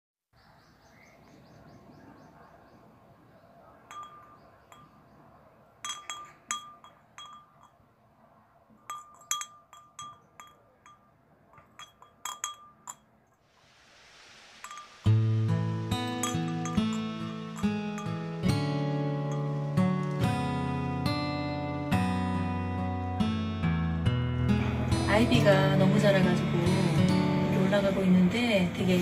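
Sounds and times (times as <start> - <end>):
wind chimes ringing: 3.9 - 5.1, 5.8 - 7.9, 8.8 - 13.2, 14.6 - 20.6
steady hiss: 13.3 - 20.6.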